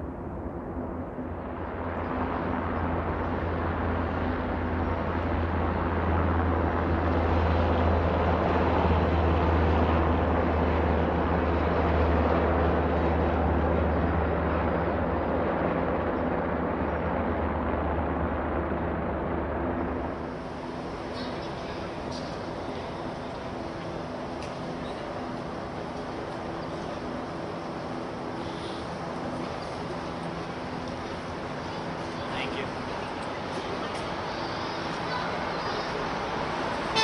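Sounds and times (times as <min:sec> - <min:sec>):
helicopter flying past: 0:00.0 - 0:37.0.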